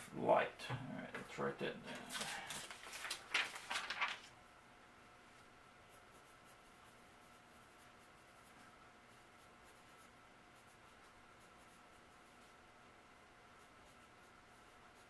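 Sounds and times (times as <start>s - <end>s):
faint electrical hum: 0.0s - 15.0s
pen scratching on paper: 5.9s - 12.6s, 13.5s - 15.0s.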